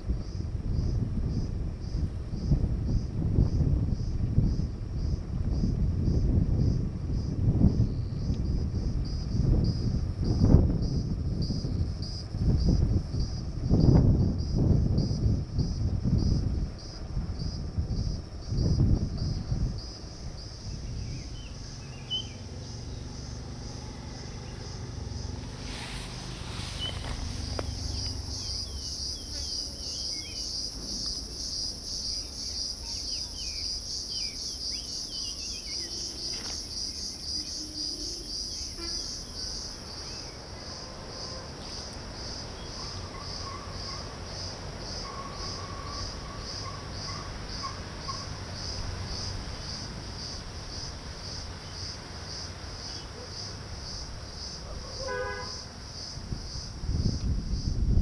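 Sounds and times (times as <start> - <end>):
insects droning: 0.0 - 58.0
faint bird chirps: 20.7 - 23.1.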